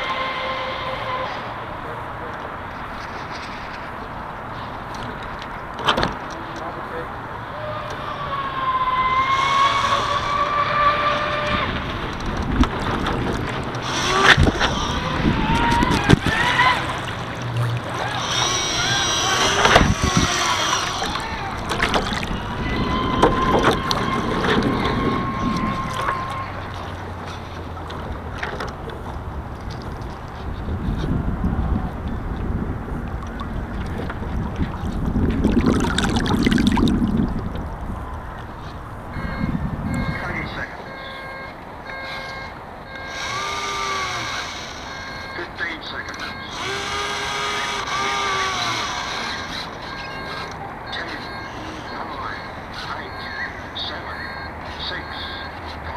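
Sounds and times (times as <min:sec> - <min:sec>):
water rushing past hull: 0:08.5 - 0:28.7, 0:31.2 - 0:40.1
wind on microphone: 0:11.2 - 0:27.1, 0:29.2 - 0:40.8
winch servo whining: 0:13.7 - 0:27.5, 0:39.1 - 0:53.8.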